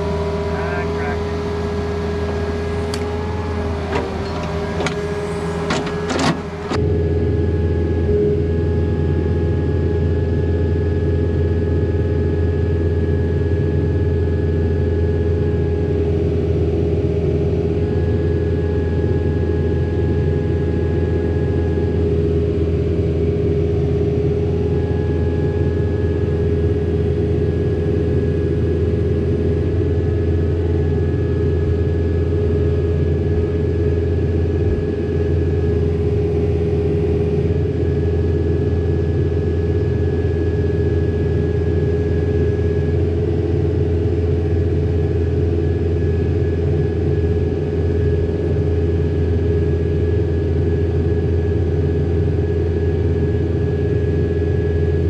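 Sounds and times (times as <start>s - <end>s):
diesel engine running: 0.0s - 48.6s
knocks and clatter: 3.9s - 6.8s.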